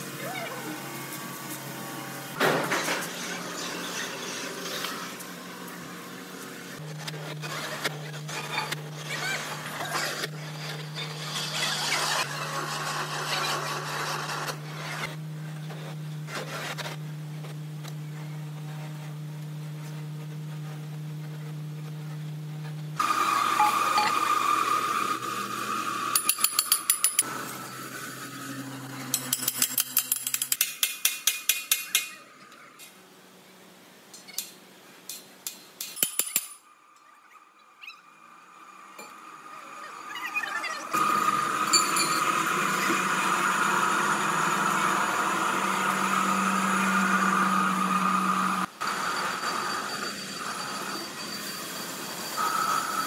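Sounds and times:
lathe humming: 40.9s - 53.0s.

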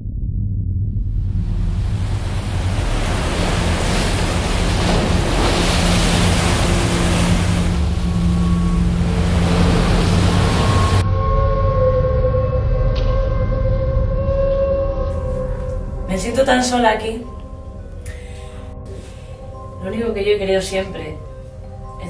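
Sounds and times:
low steady held tones: 0.7s - 22.0s
surf breaking on rocky shore: 1.3s - 11.0s.

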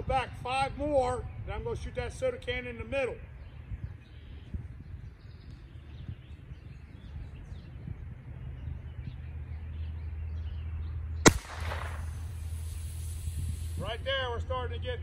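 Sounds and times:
low steady rumble: 1.1s - 15.0s
bird chirps: 3.1s - 12.8s.

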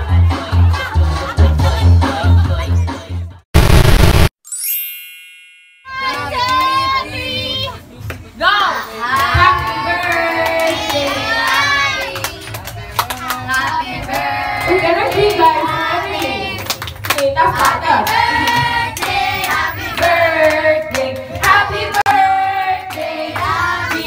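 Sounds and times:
group singing a celebration song: 9.0s - 16.8s, 17.4s - 24.0s
hands clapping: 10.0s - 15.4s, 16.2s - 22.1s, 22.9s - 24.0s.

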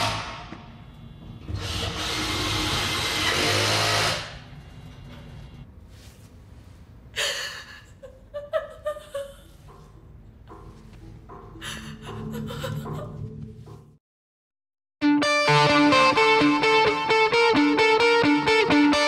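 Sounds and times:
woman whimpering: 11.6s - 13.3s.

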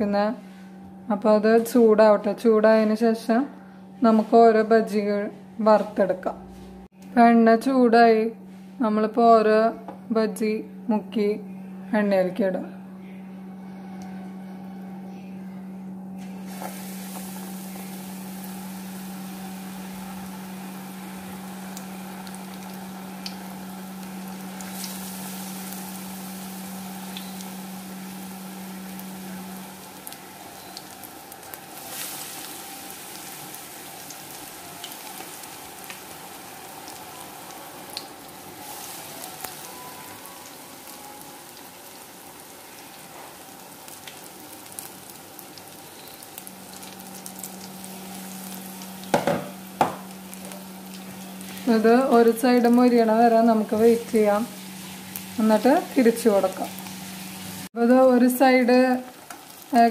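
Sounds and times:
steady low hum: 0.0s - 36.4s, 45.8s - 59.9s
deep-frying sizzle with pops: 16.2s - 59.9s.

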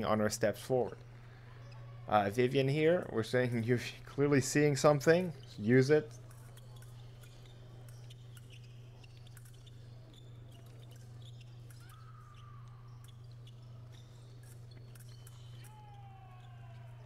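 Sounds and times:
steady low hum: 0.0s - 17.0s
shoes squeaking and tapping: 5.0s - 17.0s.

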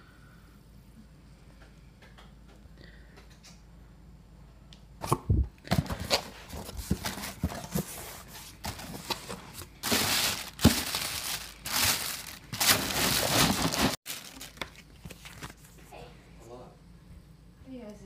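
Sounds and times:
plastic bag crinkling: 8.6s - 15.6s.

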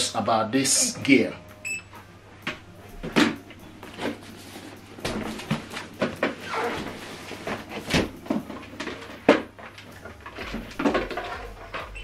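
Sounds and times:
cardboard scraping: 3.9s - 9.2s.

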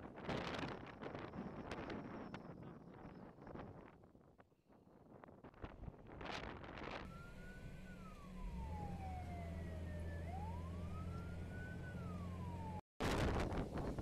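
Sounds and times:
wind buffeting microphone: 0.0s - 7.2s, 13.0s - 14.0s
emergency siren wailing: 7.0s - 12.8s
low vehicle engine hum: 7.0s - 12.8s.

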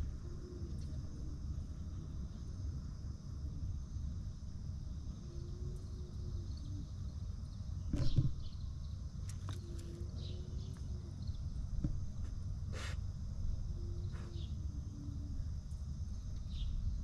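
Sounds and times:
faint hum: 0.0s - 17.0s
low outdoor rumble: 0.0s - 17.0s.

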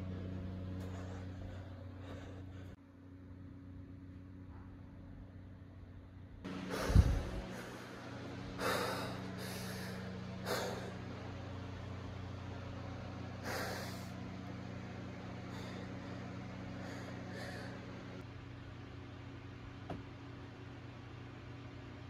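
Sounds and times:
steady low hum: 0.0s - 22.0s
person breathing heavily: 0.6s - 2.8s, 6.5s - 11.6s, 13.4s - 14.4s, 15.2s - 18.2s.

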